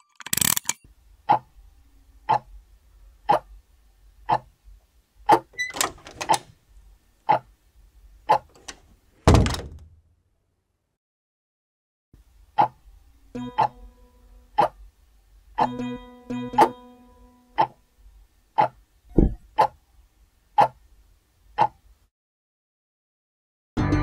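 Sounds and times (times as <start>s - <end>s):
heavy thump: 9.3s - 9.9s, 19.1s - 19.4s
short thuds: 19.1s - 19.5s.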